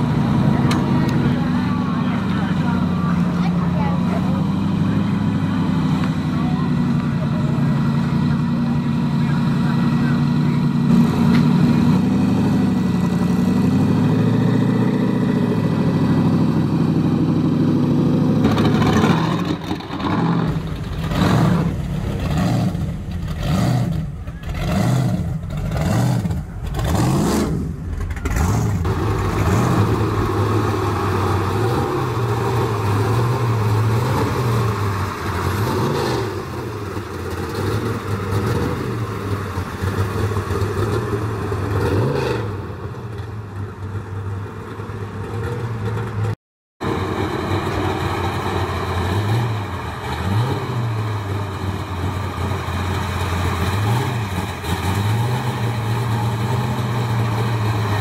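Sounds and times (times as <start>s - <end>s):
car engine idling: 0.0s - 41.8s
car engine revving: 0.0s - 58.0s.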